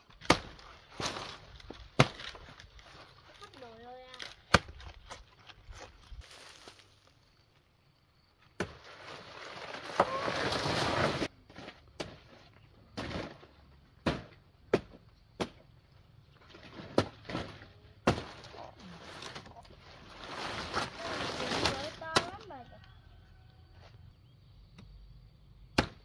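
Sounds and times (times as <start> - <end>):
leaves and stalks rustling: 0.0 - 7.6, 8.2 - 12.6, 16.3 - 22.8
sharp chopping knocks: 25.8 - 26.0.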